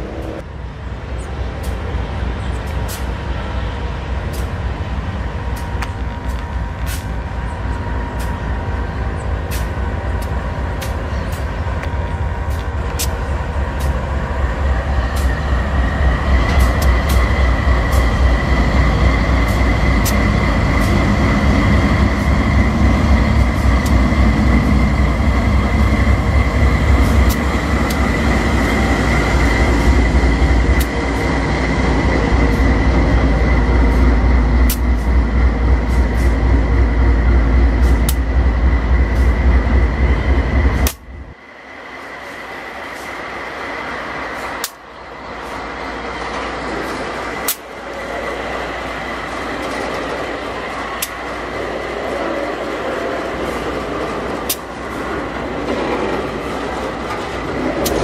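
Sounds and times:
diesel locomotive engines rumbling: 0.0s - 58.0s
steel wheels clicking over rails: 49.0s - 58.0s.

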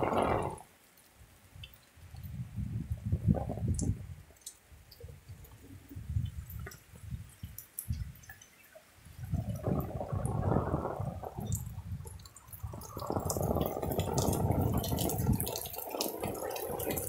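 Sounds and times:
low rumbling on microphone: 0.0s - 0.6s, 2.3s - 4.2s, 9.2s - 17.0s
rain drips and splashes: 0.0s - 17.0s.

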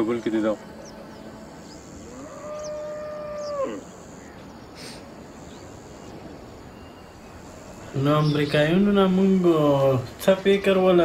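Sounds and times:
faint bird chirps: 0.0s - 10.1s
cow mooing: 2.1s - 3.9s.

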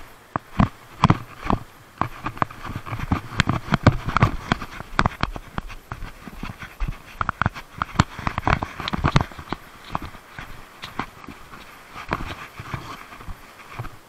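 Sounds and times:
sandalled feet slapping on rocks: 0.3s - 14.0s.

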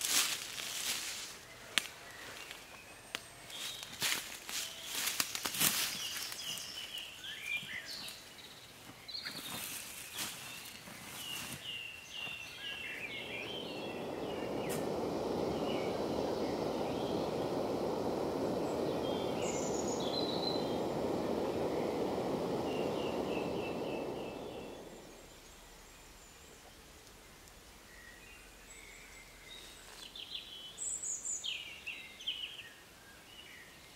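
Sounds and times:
songbird singing: 1.4s - 33.9s
gas stove burner hissing: 12.6s - 25.5s.

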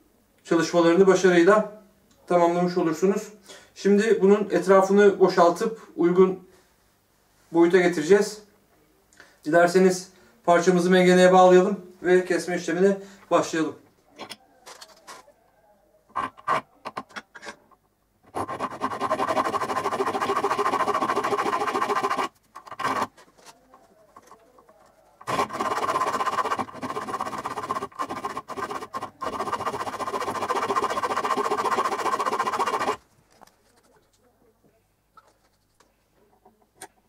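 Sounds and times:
hacksaw cutting metal: 18.3s - 23.1s, 25.2s - 33.0s.

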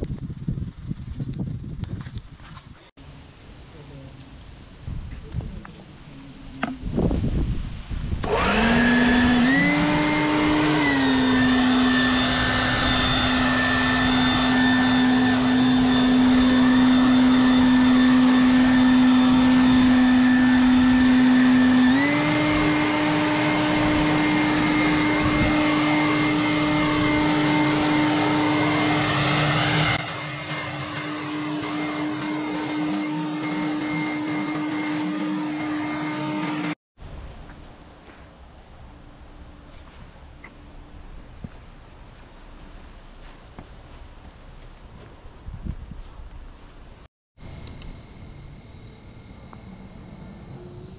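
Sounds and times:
leaf blower whining: 8.2s - 36.8s.

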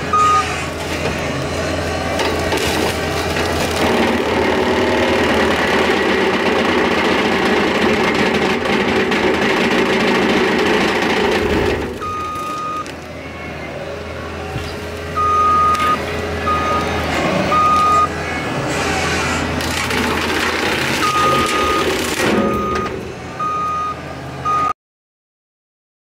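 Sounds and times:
diesel engine running hard: 0.0s - 24.7s
backup alarm beeping: 0.1s - 0.6s, 12.0s - 12.9s, 15.2s - 18.2s, 21.0s - 24.8s.

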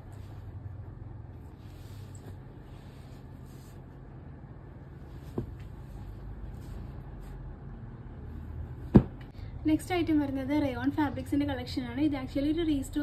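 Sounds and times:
steady low hum: 0.0s - 13.0s
cloth rustling: 1.4s - 4.1s, 4.9s - 7.6s.

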